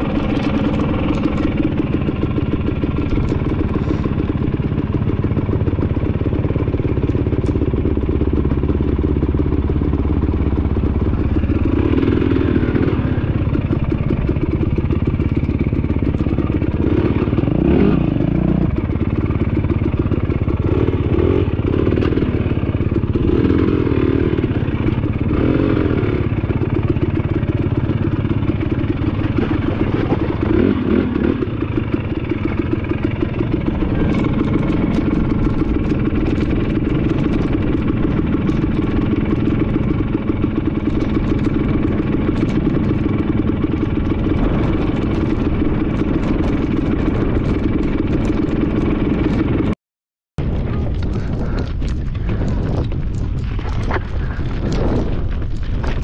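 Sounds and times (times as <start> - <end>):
dirt bike engine revving: 7.9 - 49.8.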